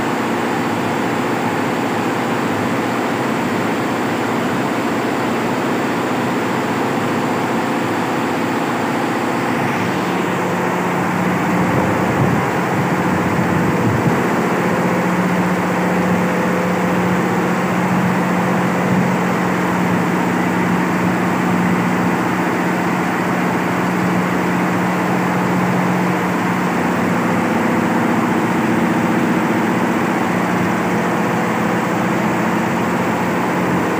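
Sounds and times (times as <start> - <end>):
embroidery machine running: 0.0 - 33.9
steady low hum: 8.0 - 33.9.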